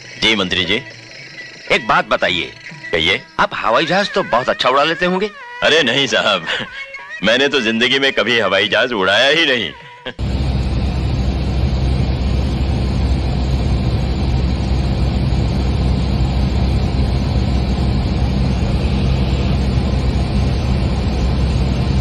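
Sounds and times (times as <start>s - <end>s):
propeller airplane engine drone: 10.2s - 22.0s.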